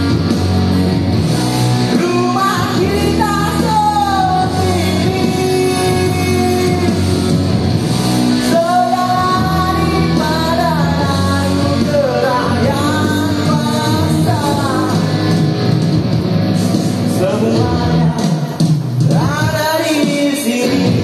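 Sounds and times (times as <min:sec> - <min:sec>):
backing music: 0:00.0 - 0:21.0
man singing through microphone: 0:01.9 - 0:07.3, 0:08.4 - 0:15.3, 0:17.1 - 0:21.0.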